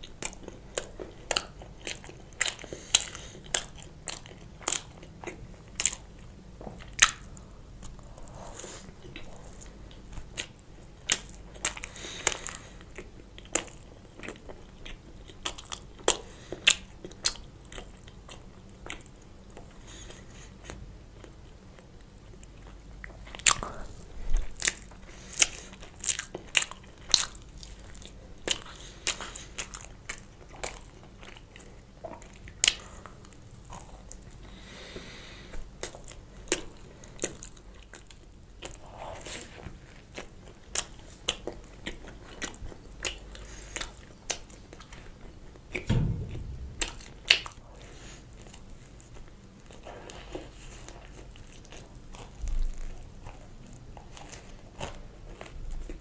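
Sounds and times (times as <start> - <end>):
soft chewing: 0.0 - 46.8, 47.4 - 56.0.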